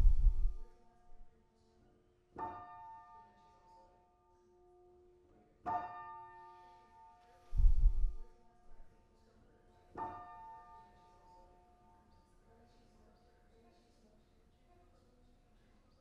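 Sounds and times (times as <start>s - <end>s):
deep low thump: 0.0s - 0.7s, 7.5s - 8.3s.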